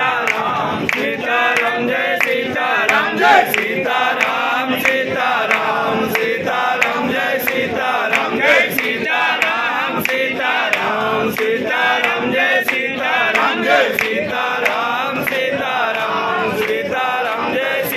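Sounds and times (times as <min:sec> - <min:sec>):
group chanting in unison: 0:00.0 - 0:17.9.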